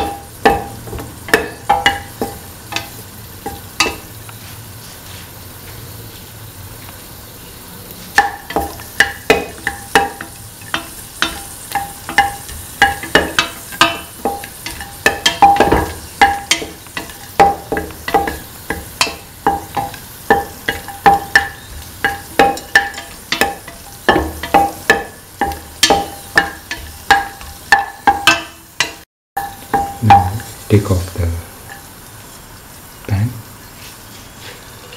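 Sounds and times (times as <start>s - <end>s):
wooden spatula knocking on pan: 0.0s - 4.2s, 8.2s - 30.6s
nuts sizzling in oil: 0.0s - 34.9s.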